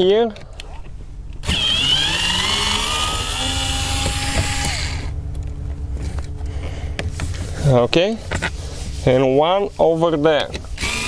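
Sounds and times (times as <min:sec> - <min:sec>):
electric screwdriver motor whine: 0:01.4 - 0:05.1, 0:10.8 - 0:11.0.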